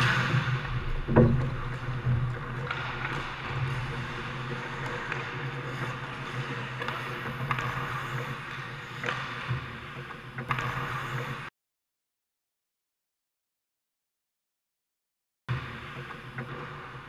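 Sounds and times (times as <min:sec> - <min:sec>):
hockey sticks and puck clacking: 0:00.0 - 0:11.5, 0:15.6 - 0:17.0
low rink hum: 0:00.0 - 0:11.5, 0:15.5 - 0:17.0
skates scraping on ice: 0:00.0 - 0:11.5.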